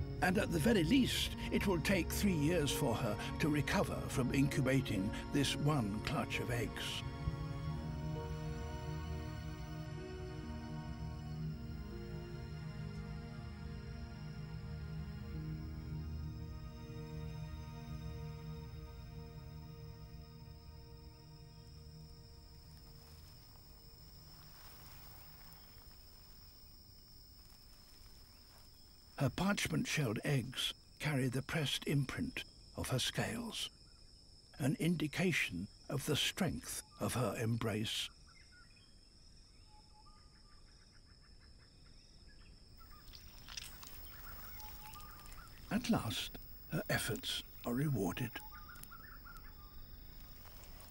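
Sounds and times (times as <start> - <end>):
cricket trilling: 0.0 - 50.9
high insect drone: 0.0 - 50.9
soft chirps: 21.6 - 29.4, 42.8 - 50.9
faint rustling and crackling: 22.6 - 29.2, 42.8 - 50.9.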